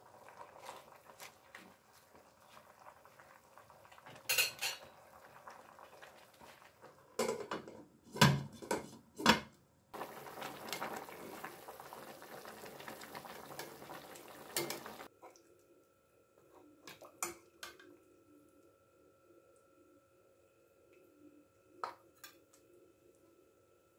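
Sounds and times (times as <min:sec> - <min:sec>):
utensils clanking on metal pot: 0:04.2 - 0:04.9.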